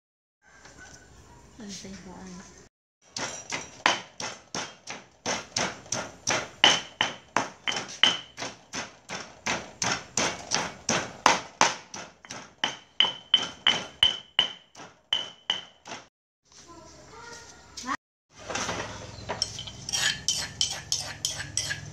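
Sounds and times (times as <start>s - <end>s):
pestle pounding in stone mortar: 3.1s - 16.1s, 19.3s - 21.9s
stone clinking on stone: 19.3s - 21.8s.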